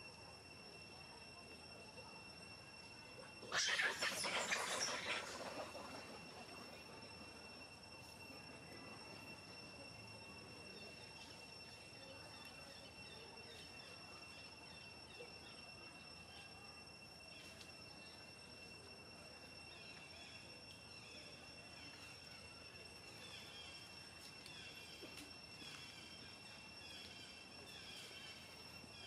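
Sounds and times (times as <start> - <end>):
faint chirps: 0.0 - 29.0
high-pitched insect drone: 0.0 - 29.0.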